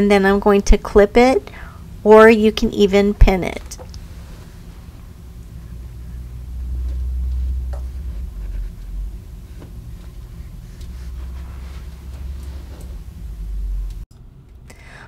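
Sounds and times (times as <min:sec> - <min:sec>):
steady low rumble: 0:00.2 - 0:14.1
fabric rustling: 0:09.9 - 0:13.6.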